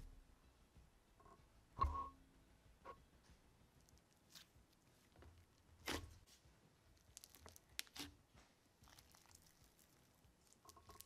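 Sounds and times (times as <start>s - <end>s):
slime crackling and popping: 6.9s - 8.2s, 8.8s - 11.0s.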